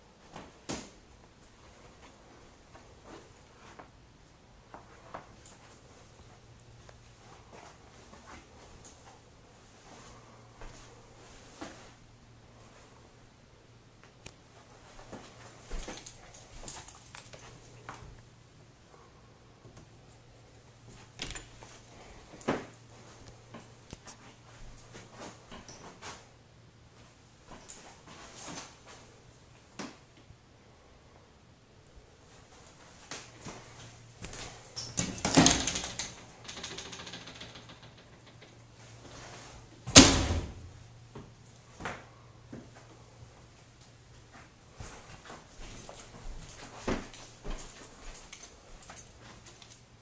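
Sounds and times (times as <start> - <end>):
steady low hum: 0.0 - 36.8
folding door rattling: 34.8 - 38.6.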